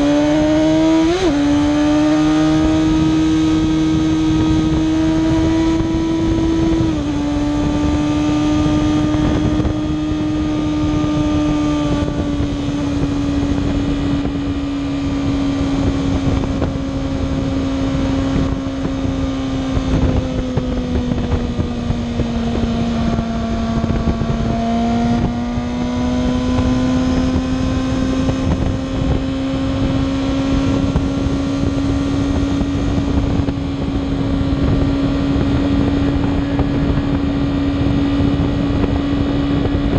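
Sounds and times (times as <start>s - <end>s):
motorcycle engine cruising: 0.0s - 39.9s
wind rushing over microphone: 0.0s - 39.9s.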